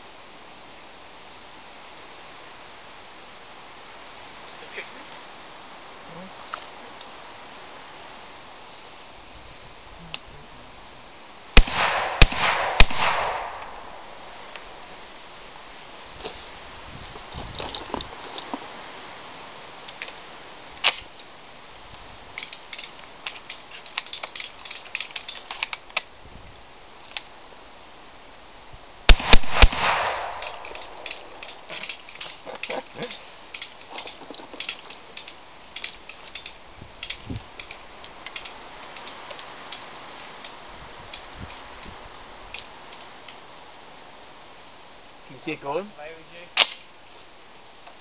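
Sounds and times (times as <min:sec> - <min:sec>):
gunshots: 0:11.6 - 0:14.4, 0:29.1 - 0:31.4
small clicks and crackles: 0:22.3 - 0:27.3, 0:29.9 - 0:43.5.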